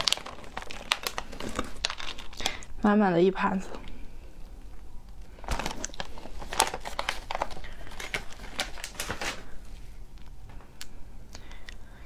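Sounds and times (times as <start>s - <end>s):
plastic bag crinkling: 0.0s - 2.7s, 5.2s - 9.6s.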